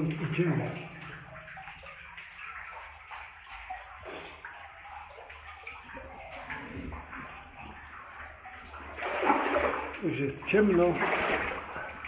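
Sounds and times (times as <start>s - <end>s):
wading through shallow water: 8.9s - 12.0s.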